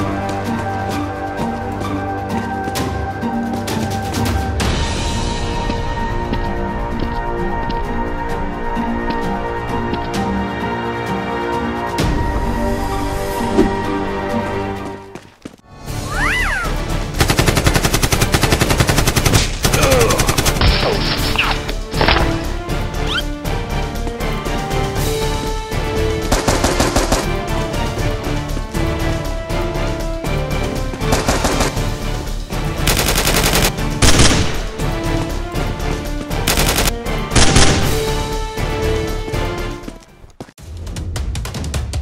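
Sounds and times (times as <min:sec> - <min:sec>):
action background music: 0:00.0 - 0:15.1, 0:15.7 - 0:42.0
rapid automatic gunfire: 0:17.2 - 0:20.6, 0:26.3 - 0:27.3, 0:31.1 - 0:31.8, 0:32.8 - 0:34.5, 0:36.5 - 0:37.9
automatic gunfire bursts: 0:26.3 - 0:27.3.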